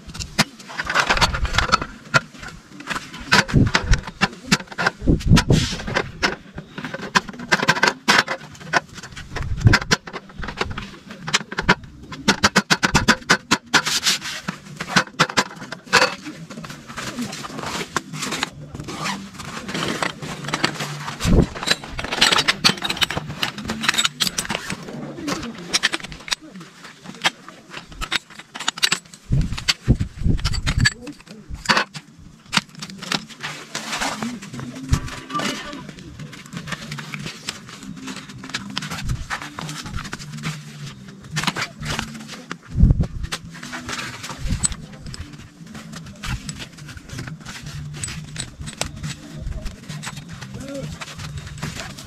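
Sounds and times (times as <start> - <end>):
camping gear rustling and knocking: 0.0 - 52.0.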